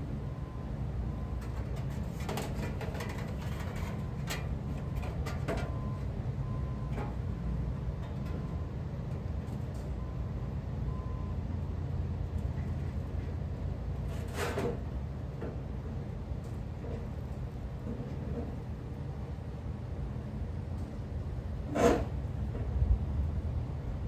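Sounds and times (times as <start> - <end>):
steady low rumble: 22.2 - 24.0.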